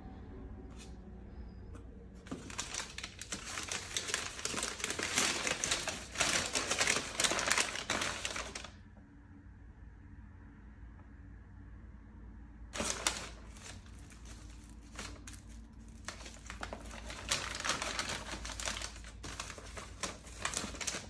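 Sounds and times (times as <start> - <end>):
packing paper crinkling: 2.2 - 8.8, 12.8 - 21.0.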